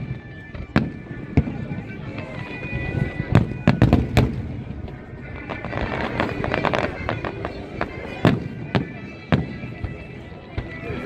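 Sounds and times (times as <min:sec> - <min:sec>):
firework crackling: 0:00.0 - 0:10.0
firework booms: 0:03.3 - 0:10.0.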